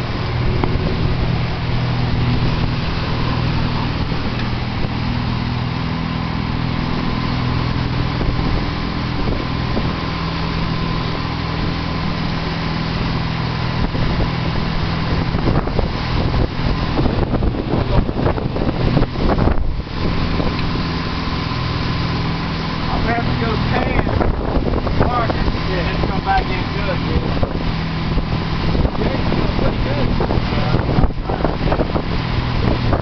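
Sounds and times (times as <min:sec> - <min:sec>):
boat engine running: 0:00.0 - 0:33.0
churning wake rushing: 0:00.0 - 0:33.0
wind buffeting microphone: 0:00.0 - 0:33.0.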